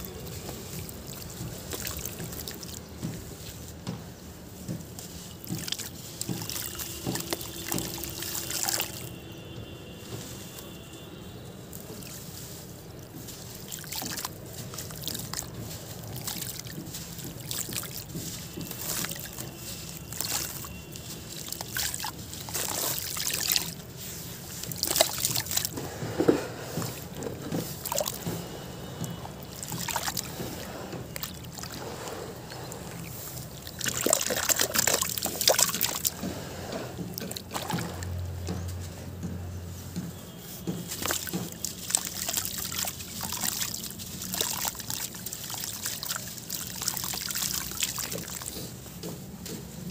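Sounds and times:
gritty crackles of crumbling lumps: 0.0 - 3.5, 13.1 - 36.2, 40.5 - 48.8
water sloshing: 0.0 - 49.9.

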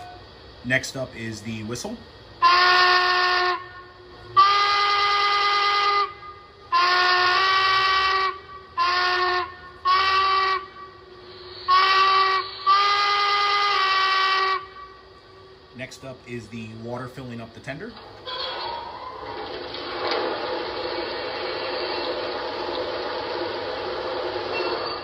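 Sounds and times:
steam locomotive whistle blasts: 0.0 - 0.3, 2.4 - 15.2, 19.8 - 25.0.

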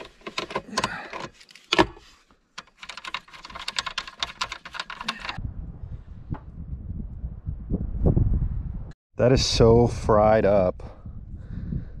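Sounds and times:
tool clicking on a bolt: 2.6 - 5.4.

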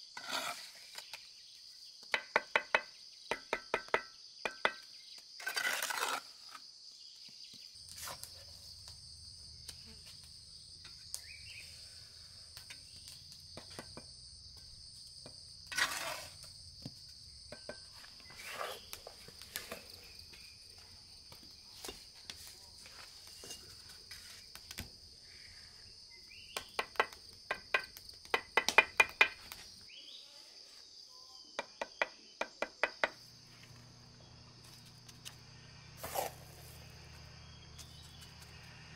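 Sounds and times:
trowel scraping mortar: 0.0 - 1.2, 5.4 - 6.6, 15.6 - 16.5, 17.6 - 19.8, 36.0 - 36.8
insect chorus: 0.0 - 38.9
trowel tapping bricks: 2.2 - 4.9, 17.5 - 19.8, 26.5 - 29.6, 31.6 - 33.2.

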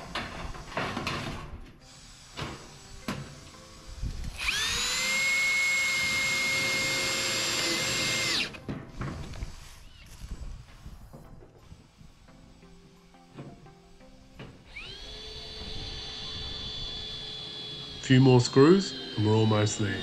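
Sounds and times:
cordless drill driving a screw: 1.8 - 10.6, 14.6 - 20.0.

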